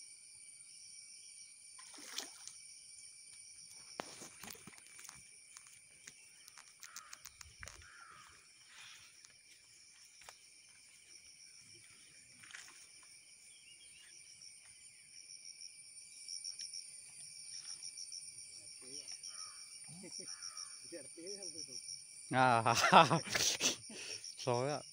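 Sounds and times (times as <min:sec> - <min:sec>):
insects chirring: 0:00.0 - 0:24.9
faint clicks and rustles: 0:04.0 - 0:08.3.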